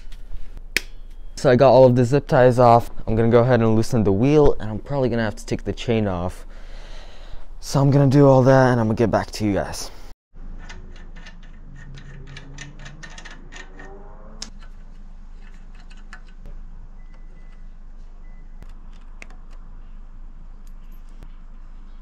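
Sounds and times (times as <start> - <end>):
faint steady hum: 0.1 - 10.1
metallic clicks and rattles: 10.6 - 14.8.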